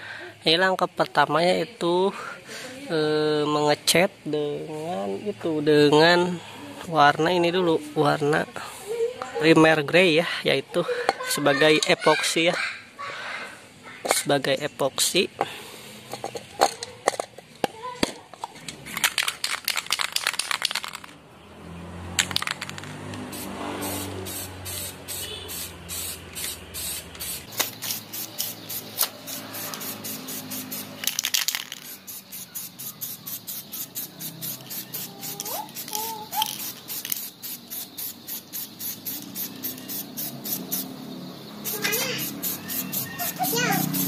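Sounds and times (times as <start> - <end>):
spray paint can hissing: 19.1 - 21.0, 22.2 - 44.0.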